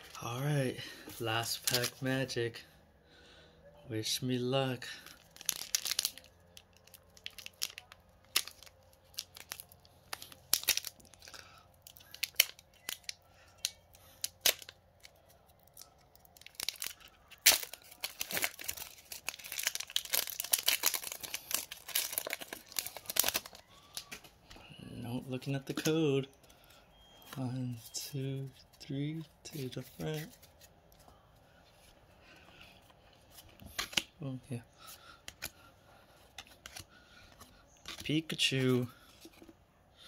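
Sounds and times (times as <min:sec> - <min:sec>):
foil wrapper crinkling and tearing: 0:01.5 - 0:02.0, 0:05.0 - 0:24.2.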